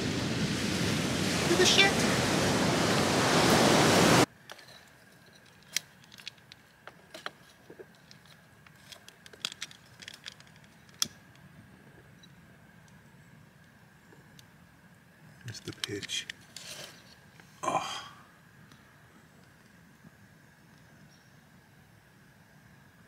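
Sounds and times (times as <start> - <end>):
ocean surf breaking: 0.0 - 4.3
faint steady hum: 0.0 - 23.0
light clicks and taps: 15.4 - 16.4.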